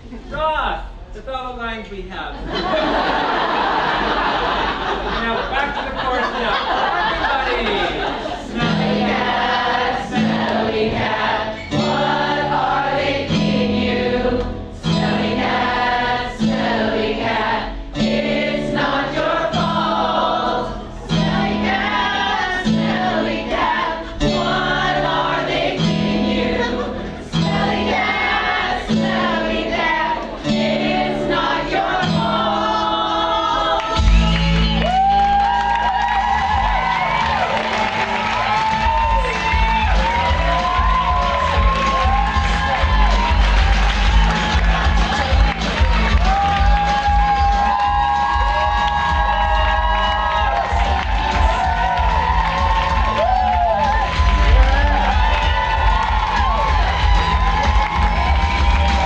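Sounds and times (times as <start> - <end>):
group of voices singing: 8.1 - 34.4
repeating bass beat: 39.2 - 59.0.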